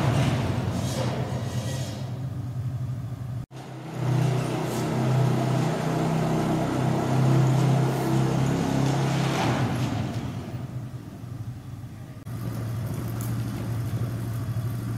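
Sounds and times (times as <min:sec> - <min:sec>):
atv engine running: 0:03.6 - 0:09.5, 0:12.3 - 0:14.9.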